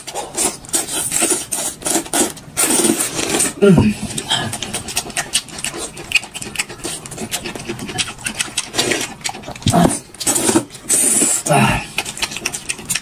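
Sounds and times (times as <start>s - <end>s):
noodle slurps: 0.0s - 13.0s
noodles being chewed: 0.0s - 13.0s.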